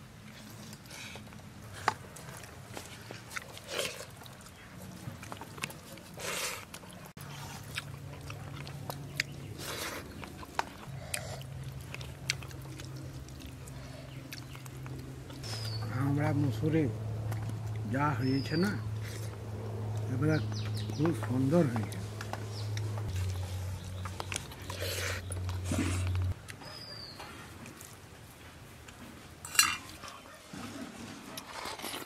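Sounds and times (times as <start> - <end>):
low steady hum: 0.0 - 26.5
chewing and mouth smacks: 0.2 - 15.8, 17.1 - 17.9, 18.9 - 26.8.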